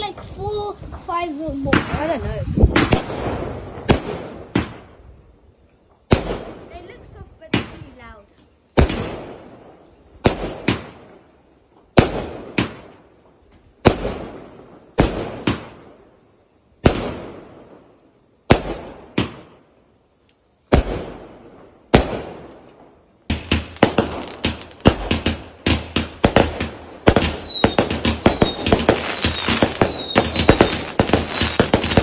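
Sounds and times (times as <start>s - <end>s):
fireworks bangs with echo: 0.0s - 5.0s, 6.0s - 8.2s, 8.8s - 11.2s, 11.9s - 13.0s, 13.8s - 16.0s, 16.8s - 19.7s, 20.7s - 32.0s
fireworks crackling pops: 0.0s - 32.0s.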